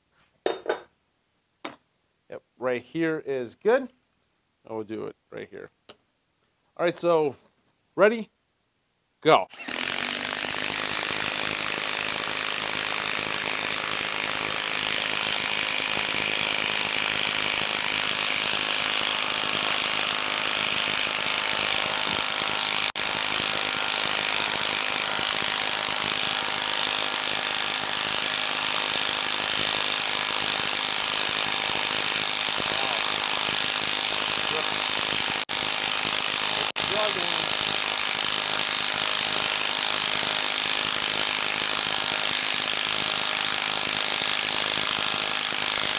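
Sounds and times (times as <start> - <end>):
impact wrench hammering: 0.5 - 0.9, 9.6 - 45.9.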